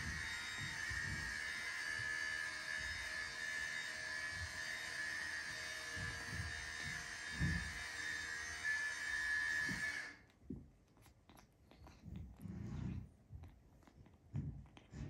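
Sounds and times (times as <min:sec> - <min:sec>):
soft low thuds: 0:05.9 - 0:07.9.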